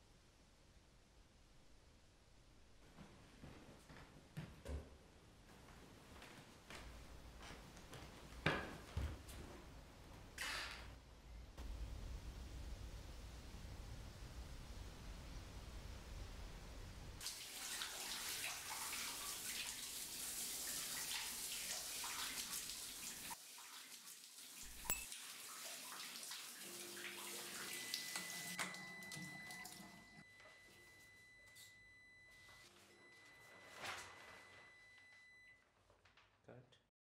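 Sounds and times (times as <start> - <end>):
water running from a tap: 17.2 - 29.9
faint high ringing tone: 24.8 - 25.2, 26.8 - 35.6.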